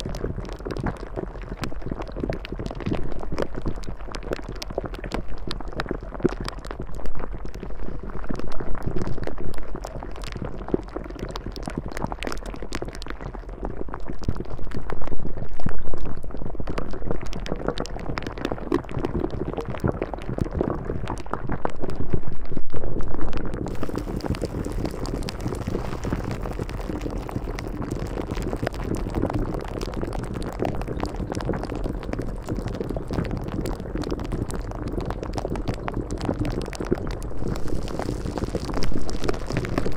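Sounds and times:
water bubbling and sloshing: 0:23.6 - 0:39.9.

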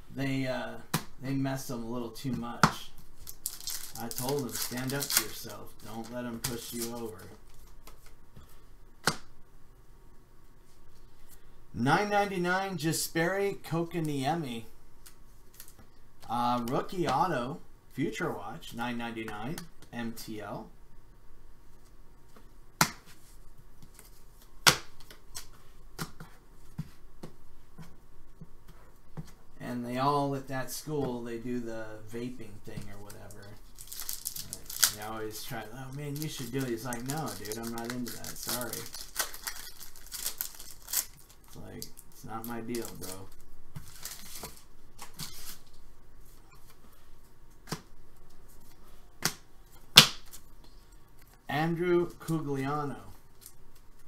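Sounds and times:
cards rustling and sliding: 0:43.8 - 0:45.7.

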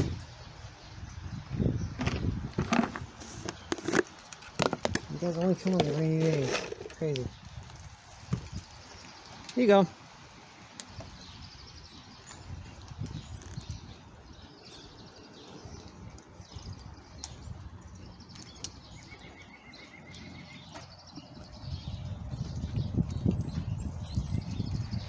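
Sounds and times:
small birds chirping: 0:00.0 - 0:25.0
bird trill: 0:16.5 - 0:22.7.

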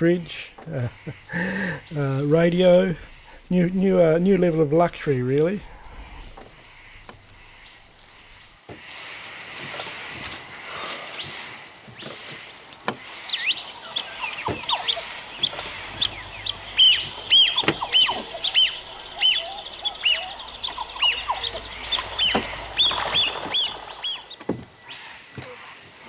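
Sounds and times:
lower bird calls: 0:00.2 - 0:09.1, 0:10.0 - 0:25.8
birds whistling calls: 0:13.0 - 0:25.1
steady high hum: 0:14.0 - 0:24.4.

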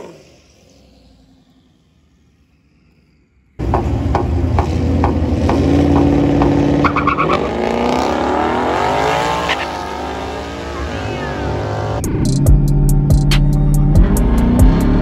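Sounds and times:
car engine revving and accelerating: 0:03.6 - 0:15.0.

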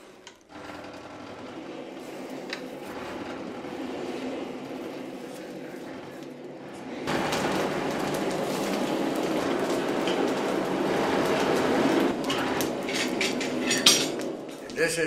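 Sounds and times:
forge fire roaring: 0:00.0 - 0:15.0.

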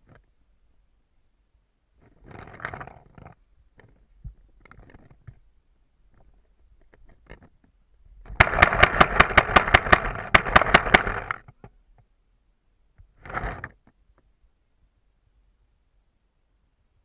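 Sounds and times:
paintball marker firing: 0:08.3 - 0:11.3.

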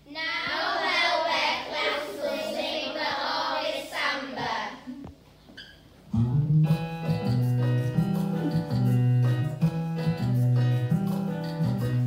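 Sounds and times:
children singing: 0:00.2 - 0:04.9
instrumental music with strong bass: 0:06.1 - 0:12.0.

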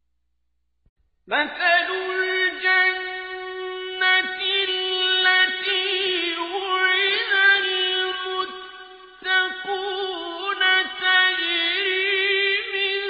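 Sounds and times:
man reciting melodically: 0:01.3 - 0:13.0.

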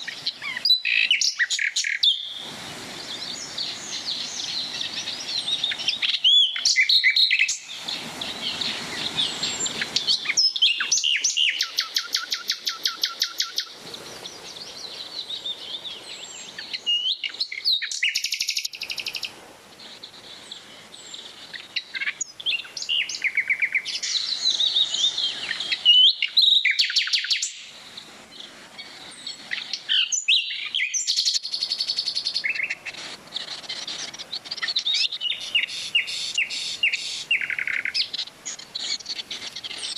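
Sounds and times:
songbirds singing and calling: 0:00.0 - 0:39.9.

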